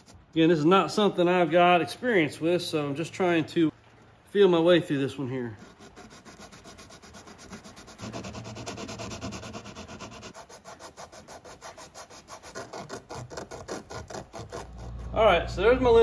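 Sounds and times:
sandpaper rubbing back and forth: 0.0 - 0.2, 5.5 - 15.5.

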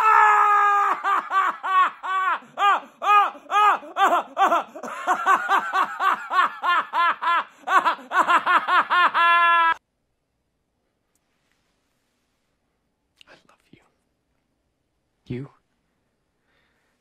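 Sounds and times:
man laughing hysterically: 0.0 - 9.8.

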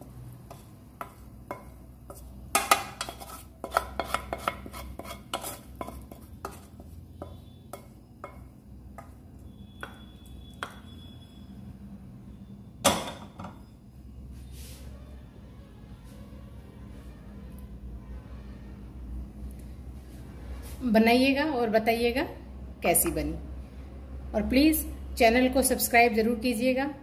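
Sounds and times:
wooden spatula scraping metal pan: 0.5 - 8.4.

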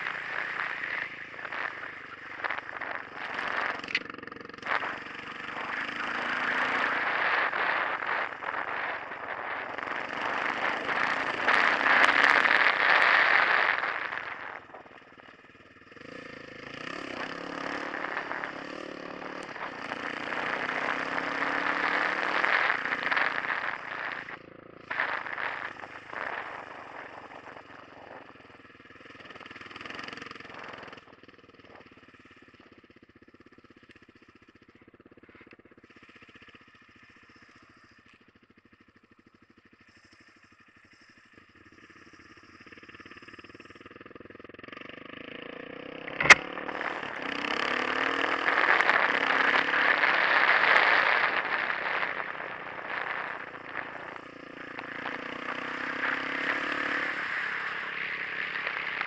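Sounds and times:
motorcycle engine: 0.0 - 59.0
wind rushing on microphone: 4.6 - 15.0.

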